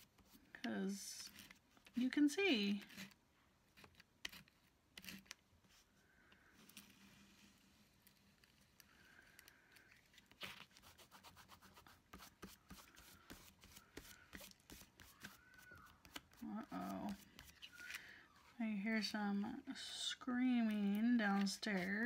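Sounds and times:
paper page rubbing and tapping: 0:10.0 - 0:18.0.

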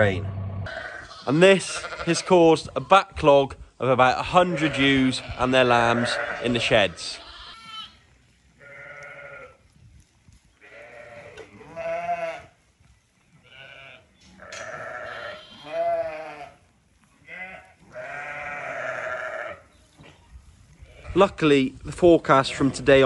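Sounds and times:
sheep and lambs bleating: 0:00.6 - 0:03.1, 0:04.2 - 0:09.7, 0:10.5 - 0:12.6, 0:13.3 - 0:19.7, 0:20.7 - 0:21.3.

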